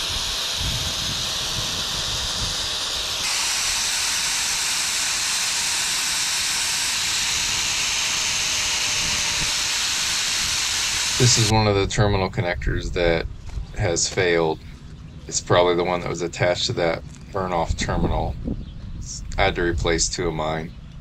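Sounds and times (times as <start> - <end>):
angle grinder wire brush hiss: 0.0 - 11.5.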